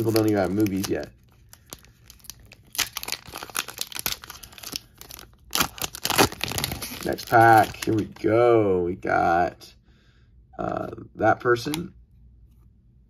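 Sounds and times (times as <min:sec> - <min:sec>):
foil wrapper tearing and crinkling: 0:00.0 - 0:08.2.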